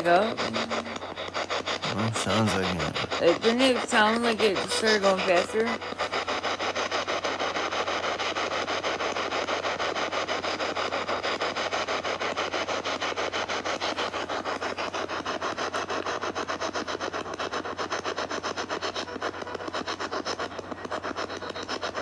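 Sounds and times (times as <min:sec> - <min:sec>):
pulsing radio static: 0:00.0 - 0:11.2.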